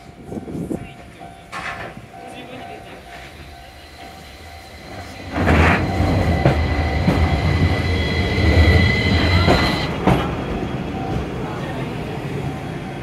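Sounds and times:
tram wheels rumbling on rails: 0.0 - 13.0
high whine: 2.7 - 10.0.

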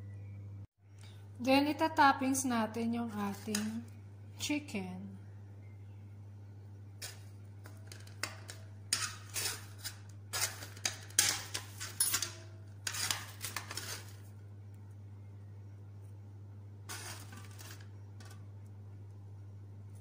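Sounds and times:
metal tongs clattering on cookware: 7.0 - 14.1.

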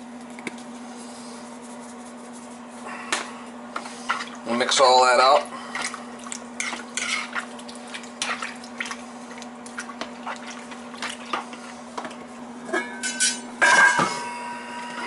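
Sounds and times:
steady low hum: 0.0 - 15.0
metal pot lid clanging: 12.7 - 14.6.

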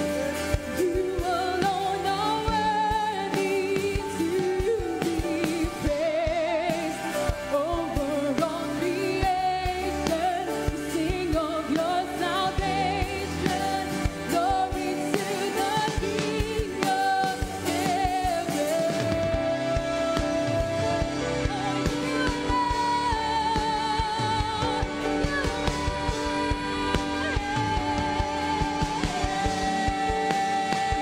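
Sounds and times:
drums: 0.0 - 31.0
keyboard: 0.0 - 31.0
woman singing: 0.0 - 31.0
electric bass: 19.1 - 31.0.

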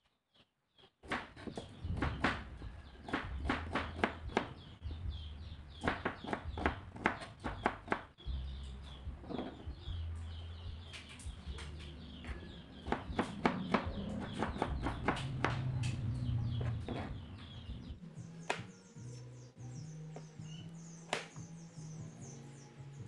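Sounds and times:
knife chopping on plastic board: 1.0 - 4.6, 5.8 - 8.1, 12.8 - 17.2.

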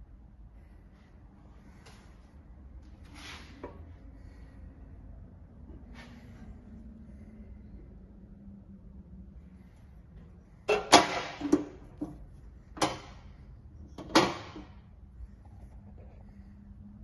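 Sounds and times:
metal door clunking shut: 10.7 - 11.8.

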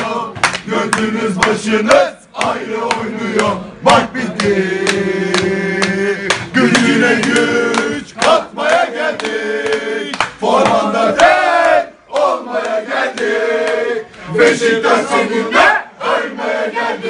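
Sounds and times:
men chanting: 0.0 - 17.0
hand claps: 0.4 - 13.9.

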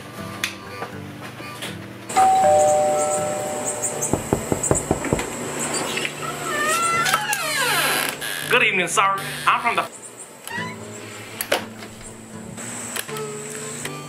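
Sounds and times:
ding-dong doorbell chime: 2.1 - 5.3
knocking on door: 4.1 - 5.5
door creaking open: 4.1 - 8.6, 10.4 - 10.9.

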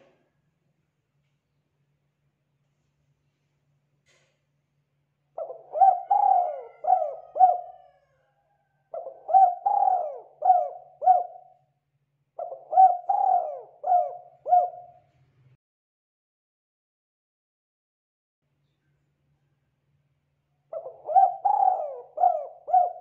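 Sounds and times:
dove cooing: 5.4 - 8.1, 8.9 - 11.6, 12.4 - 15.1, 20.7 - 23.0.

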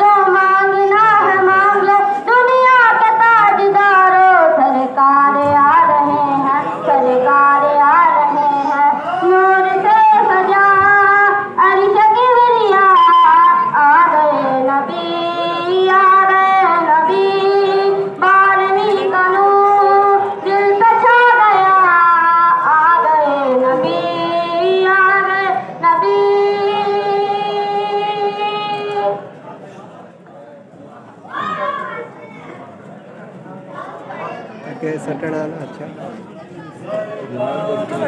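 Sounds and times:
person singing devotional song: 0.0 - 29.2.

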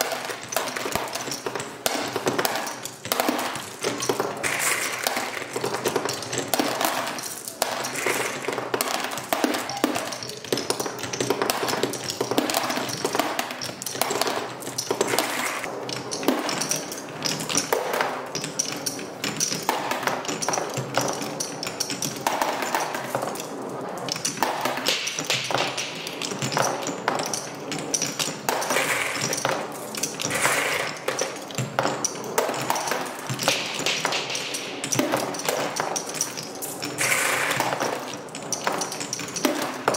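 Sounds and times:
marbles clicking: 0.0 - 23.6
marbles rolling on wooden track: 0.0 - 39.9.

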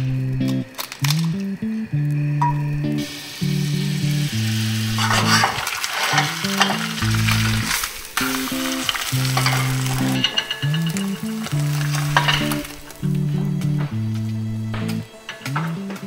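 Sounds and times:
background music: 0.0 - 16.0
egg sizzling in a pan: 3.0 - 13.6.

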